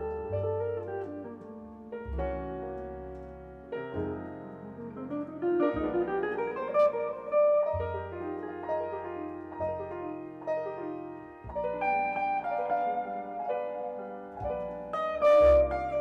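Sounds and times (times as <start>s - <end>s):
jazz trio playing slow tune: 0.0s - 16.0s.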